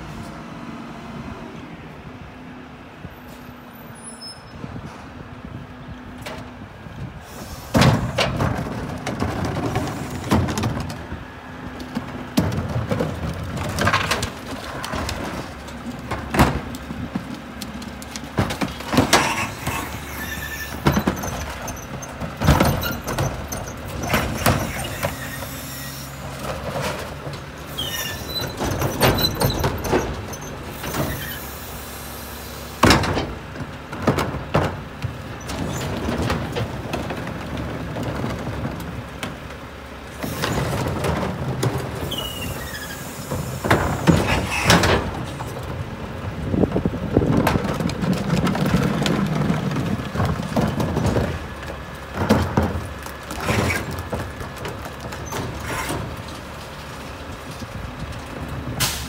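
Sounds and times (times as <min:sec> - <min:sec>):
brief squeal: 0:03.8 - 0:04.6, 0:19.3 - 0:21.9, 0:24.7 - 0:26.2, 0:27.7 - 0:28.6, 0:42.0 - 0:43.3
garbage truck engine humming: 0:04.6 - 0:59.0
trash carts banging: 0:04.6 - 0:59.0.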